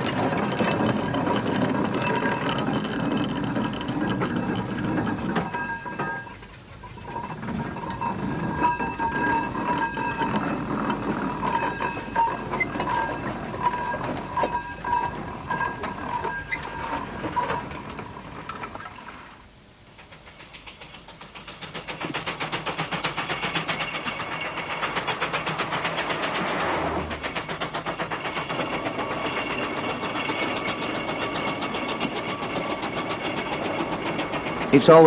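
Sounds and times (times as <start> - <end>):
steam traction engine working: 0.0 - 35.0
steady ringing tone: 0.5 - 18.3, 27.2 - 34.9.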